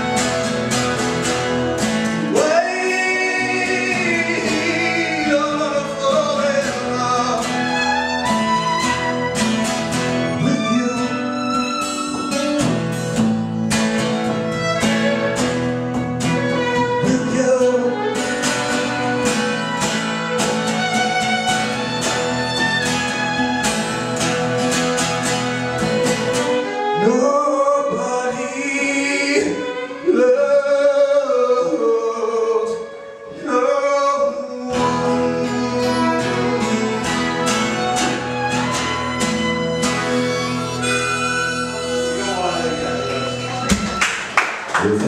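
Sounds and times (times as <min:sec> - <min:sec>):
strummed acoustic guitar: 0:00.0 - 0:45.0
violin: 0:00.0 - 0:45.0
man singing: 0:02.2 - 0:08.2, 0:10.2 - 0:11.8, 0:16.4 - 0:19.2, 0:26.5 - 0:38.3.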